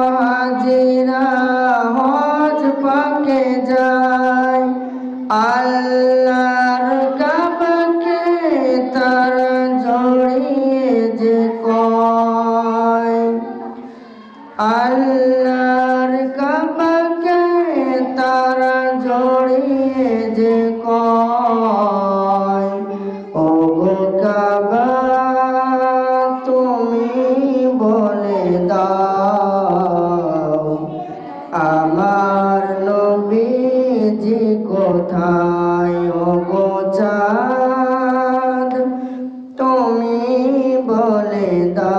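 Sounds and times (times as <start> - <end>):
person singing devotional song: 0.0 - 41.9.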